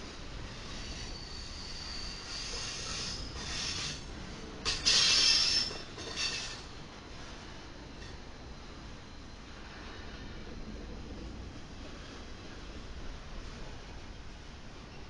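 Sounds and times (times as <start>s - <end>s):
train wheels rumbling on rail: 0.0s - 15.0s
high-pitched wheel squeal: 0.7s - 4.0s, 4.8s - 6.6s.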